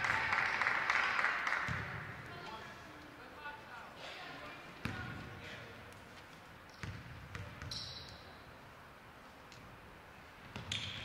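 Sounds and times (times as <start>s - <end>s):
faint murmur of a hall: 0.0s - 11.0s
basketball bouncing on hardwood floor: 6.8s - 7.8s.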